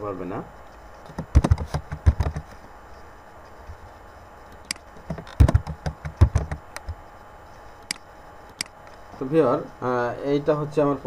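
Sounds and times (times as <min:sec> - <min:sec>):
keyboard typing: 0:01.0 - 0:02.6, 0:04.5 - 0:07.0
sharp click: 0:04.5 - 0:06.9, 0:07.8 - 0:09.0.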